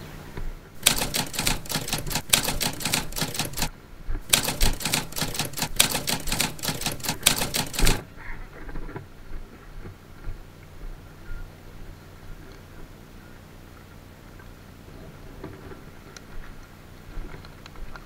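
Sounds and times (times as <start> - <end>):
typewriter keys clacking: 0.8 - 8.0.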